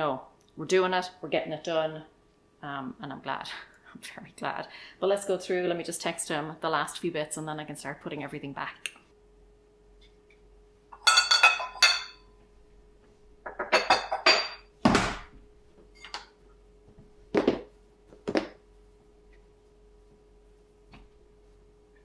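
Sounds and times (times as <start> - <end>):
ceramic mugs clinking: 11.0 - 12.3, 13.5 - 14.7
plastic tubs thumping on counter: 17.3 - 18.6.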